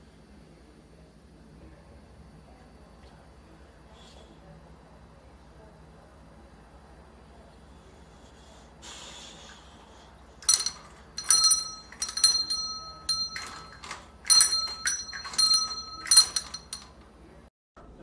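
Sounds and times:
small hand bell ringing: 0:10.4 - 0:17.0.

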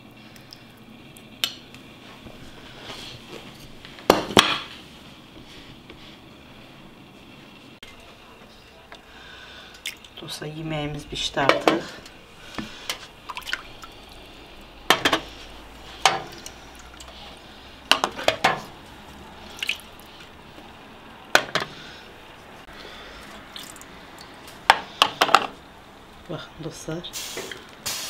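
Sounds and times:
water dripping: 0:09.7 - 0:10.3, 0:12.9 - 0:14.7, 0:19.4 - 0:20.3, 0:23.3 - 0:24.4.

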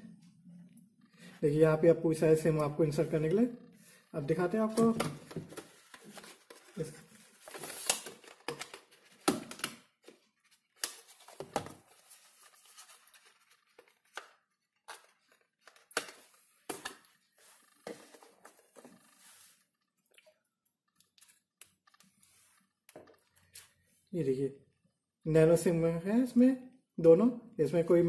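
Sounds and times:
cardboard box rustling: 0:04.8 - 0:09.3.

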